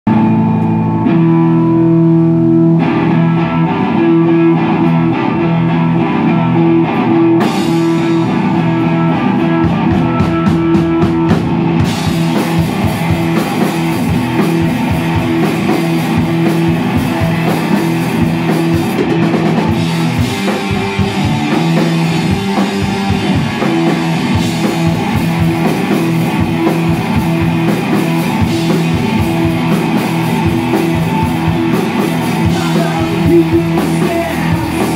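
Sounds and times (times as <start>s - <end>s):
electric guitar chords: 0.1s - 34.9s
live rock band playing: 0.1s - 34.9s.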